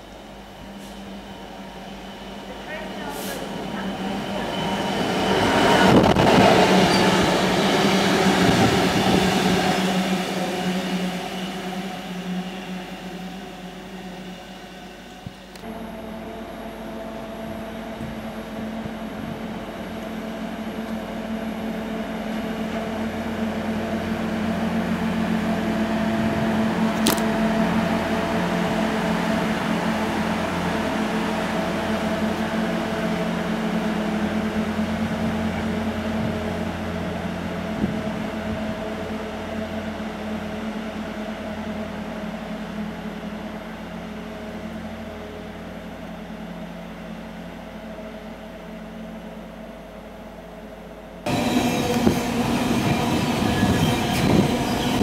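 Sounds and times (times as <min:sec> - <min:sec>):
rail grinder engine drone: 0:00.0 - 0:55.0.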